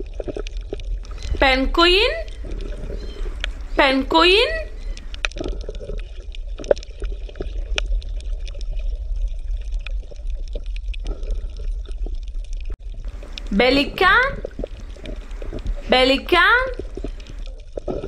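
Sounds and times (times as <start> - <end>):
water sloshing and splashing: 0.0 - 18.0
steady low hum: 13.1 - 17.4.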